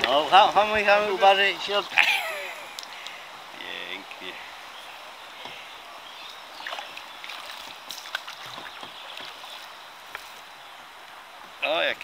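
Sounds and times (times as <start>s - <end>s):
steady water noise: 0.0s - 12.0s
paddles dipping and splashing: 4.0s - 11.6s.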